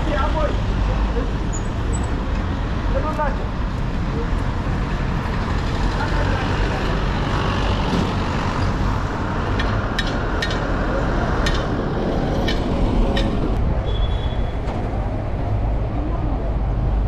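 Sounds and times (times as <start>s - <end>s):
vehicle engines rumbling: 0.0s - 17.0s
brief high squeal: 13.8s - 14.6s.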